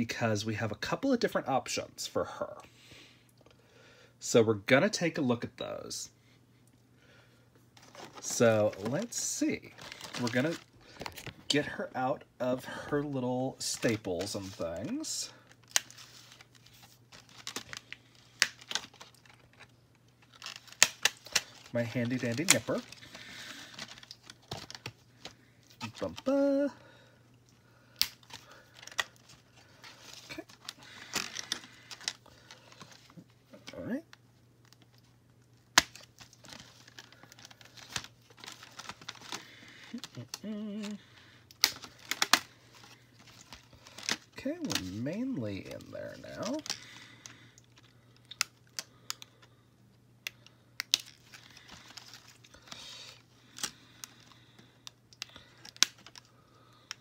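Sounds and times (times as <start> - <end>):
plastic tray crinkling: 7.8 - 11.5
plastic crinkling: 7.8 - 11.6, 13.6 - 27.0, 27.9 - 49.6, 50.2 - 57.0.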